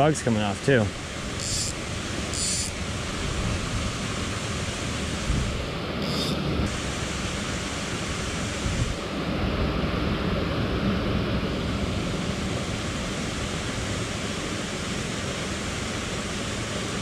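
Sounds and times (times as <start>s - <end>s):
waterfall rushing into pool: 0.0s - 17.0s
high hissing swishes: 1.3s - 2.8s.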